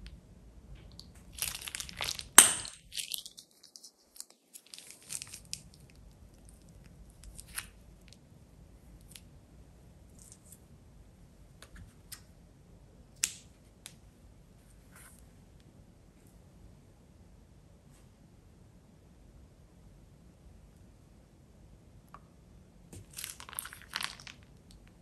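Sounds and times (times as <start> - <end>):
plastic piping bag crinkling: 1.3 - 7.8, 23.0 - 24.6.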